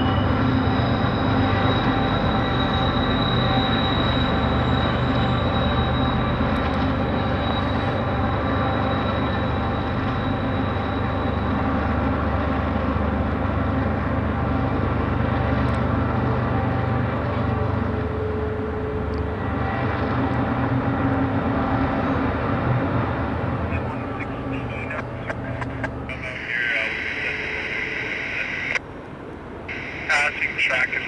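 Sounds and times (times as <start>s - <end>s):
high-pitched steady squeal: 0.0s - 12.6s, 23.7s - 28.8s, 29.7s - 30.6s
freight train rumbling: 0.0s - 31.0s.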